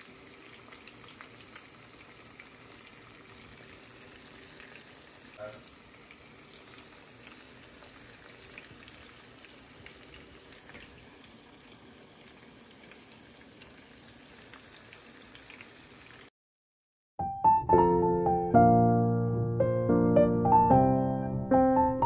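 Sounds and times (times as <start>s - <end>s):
fish sizzling in a pan: 0.0s - 16.3s
small pops and crackles: 7.2s - 11.0s
piano music: 17.2s - 22.0s.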